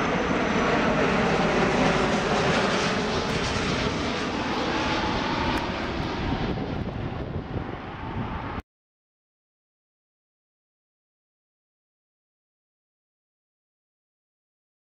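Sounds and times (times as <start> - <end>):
jet engines rushing overhead: 0.0 - 8.6.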